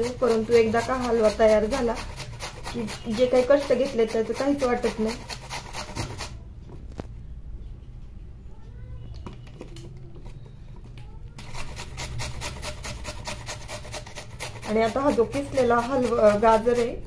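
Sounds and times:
carrot grating on grater: 0:00.0 - 0:06.4, 0:11.4 - 0:17.0.

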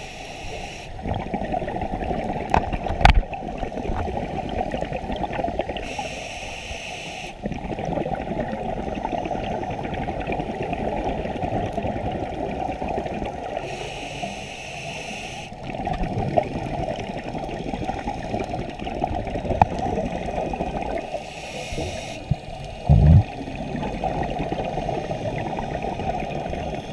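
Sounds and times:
scuba regulator breathing hiss: 0:00.0 - 0:01.0, 0:05.8 - 0:07.4, 0:13.6 - 0:15.6, 0:21.0 - 0:22.9
underwater water and bubbles: 0:00.0 - 0:26.9.

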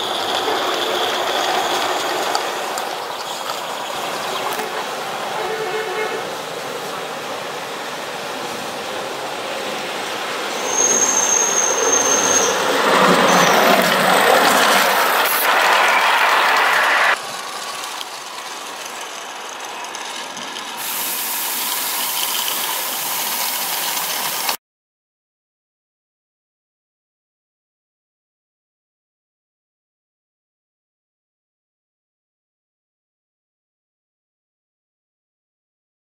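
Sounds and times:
small steam locomotive running: 0:00.0 - 0:24.6
steam locomotive hissing: 0:00.0 - 0:24.6
thin high tone: 0:10.5 - 0:19.9.

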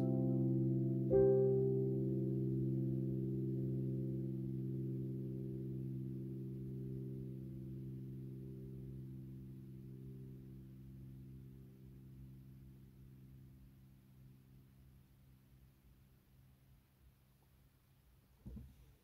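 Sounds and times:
low digital piano chord ringing: 0:00.0 - 0:13.9.

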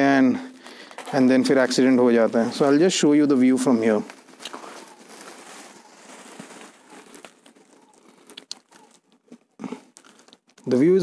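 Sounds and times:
rustling crinkling on microphone: 0:00.0 - 0:11.0
scattered clicks and crackles: 0:04.0 - 0:11.0.

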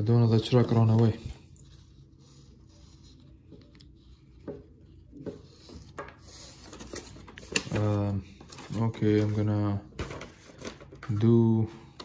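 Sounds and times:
handling noises: 0:00.5 - 0:12.0.

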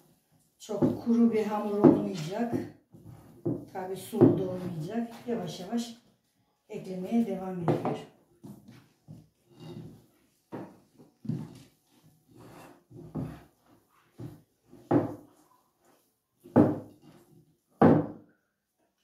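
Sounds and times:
hands kneading dough in bowl: 0:08.4 - 0:17.8.

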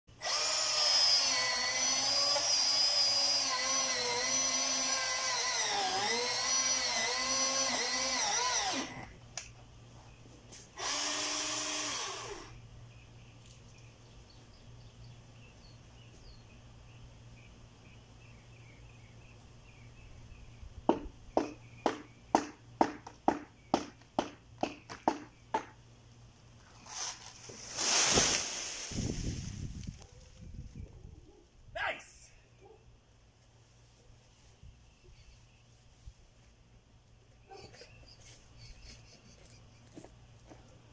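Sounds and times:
electric chainsaw cutting wood: 0:00.1 - 0:09.2, 0:10.8 - 0:12.6.

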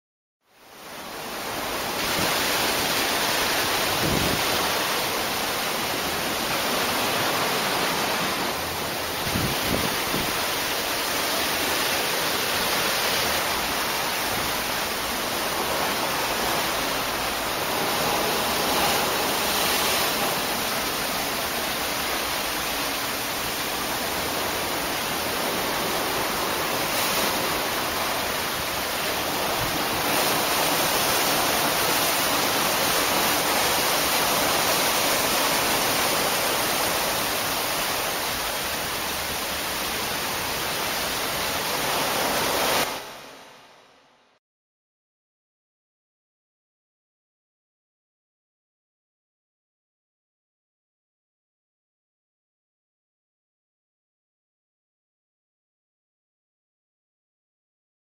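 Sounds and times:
wind and sea rushing: 0:00.5 - 0:44.2
wind buffets on microphone: 0:01.9 - 0:16.9.

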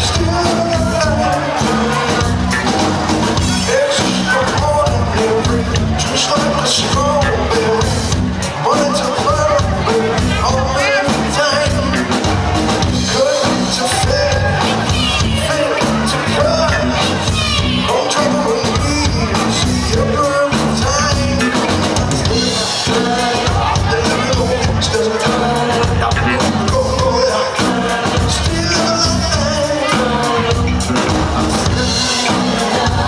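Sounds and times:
live rock band playing: 0:00.0 - 0:33.0
lead singer with backing vocals: 0:13.1 - 0:30.8.

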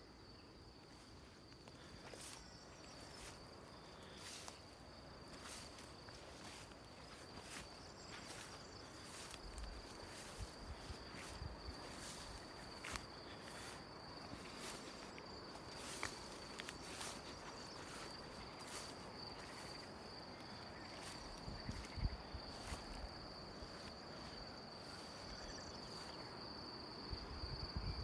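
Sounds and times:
insects trilling: 0:00.0 - 0:28.0
wind rumble on microphone: 0:21.3 - 0:23.1, 0:27.1 - 0:28.0.

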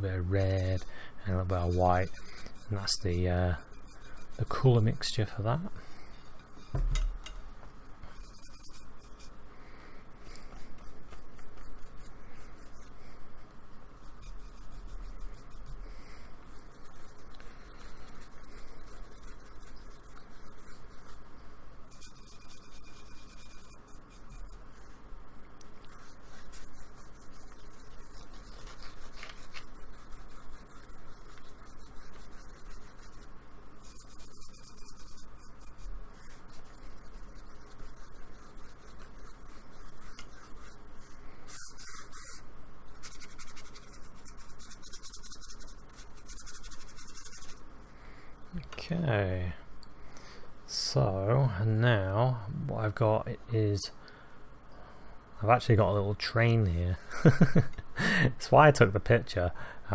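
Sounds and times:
paintbrush scrubbing on paper: 0:00.0 - 0:06.7, 0:08.0 - 0:25.1, 0:25.7 - 0:47.7.

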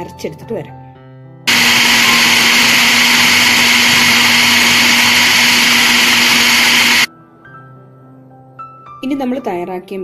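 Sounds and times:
mixer grinder running: 0:01.5 - 0:07.1.

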